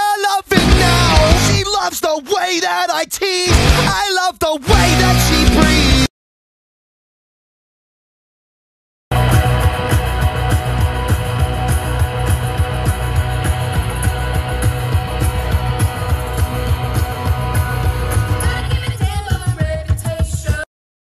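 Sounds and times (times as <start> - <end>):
rock music with guitar: 0.5 - 1.6, 3.5 - 4.0, 4.7 - 6.1, 9.1 - 19.0
heavy steady drum beat: 0.5 - 1.8, 3.5 - 4.0, 4.7 - 6.1, 9.1 - 20.6.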